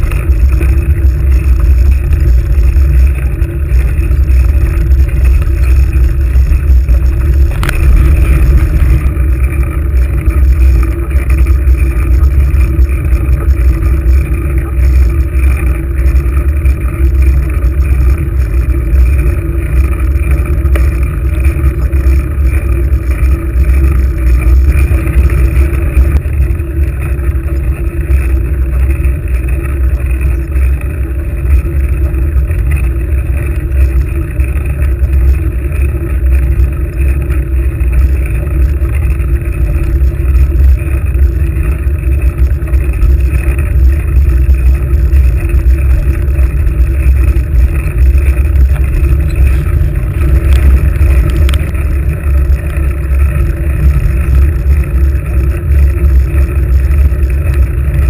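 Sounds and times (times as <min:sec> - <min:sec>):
wind and road rumble: 0:00.0 - 0:58.0.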